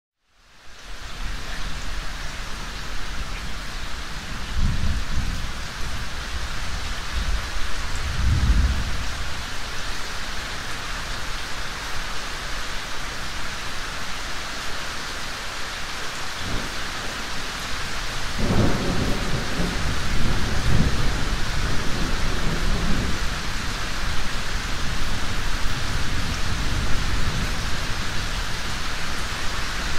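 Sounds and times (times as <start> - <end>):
heavy rain: 0.2 - 29.9
thunder rumbling: 4.1 - 9.4, 18.0 - 23.8.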